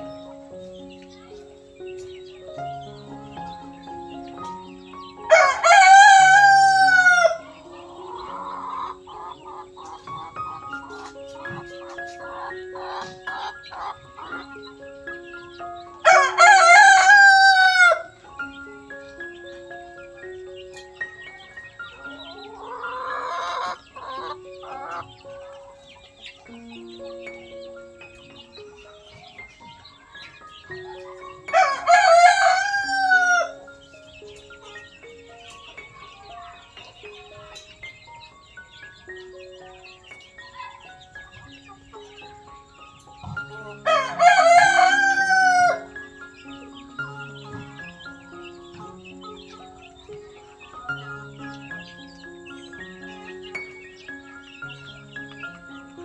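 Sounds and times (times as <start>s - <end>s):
chicken clucking: 0.0s - 56.0s
soft background music: 0.0s - 56.0s
rooster crowing: 5.3s - 7.5s, 16.0s - 18.2s, 31.5s - 33.6s, 43.8s - 46.0s.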